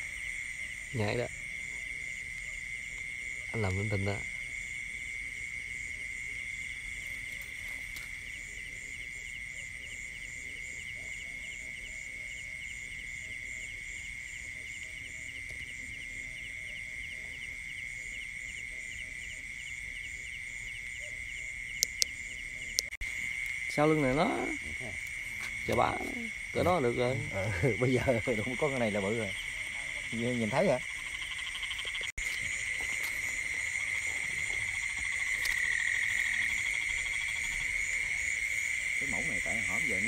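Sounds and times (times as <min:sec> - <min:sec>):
crickets chirping: 0:00.0 - 0:40.0
insects droning: 0:00.0 - 0:40.0
sharp clicks: 0:21.8 - 0:22.2.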